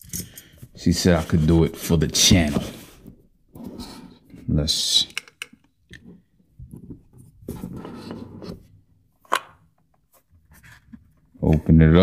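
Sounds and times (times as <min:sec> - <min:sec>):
cardboard rustling and scraping: 0:01.0 - 0:04.2, 0:07.4 - 0:08.7.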